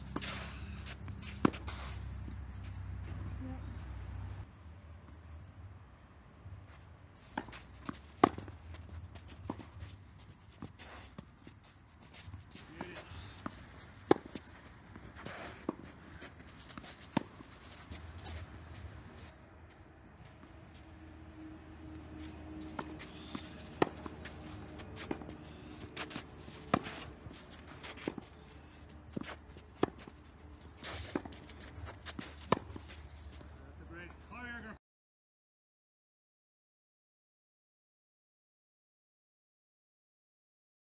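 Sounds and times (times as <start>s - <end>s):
racket hitting tennis ball: 0.0s - 2.2s, 7.3s - 9.8s, 12.6s - 19.2s, 22.6s - 28.5s, 29.1s - 30.1s, 30.8s - 33.0s
tennis ball bounces: 0.0s - 3.4s, 7.3s - 19.2s, 22.6s - 30.2s, 30.8s - 33.5s
footsteps on clay: 0.0s - 4.4s, 6.6s - 21.0s, 21.8s - 34.2s.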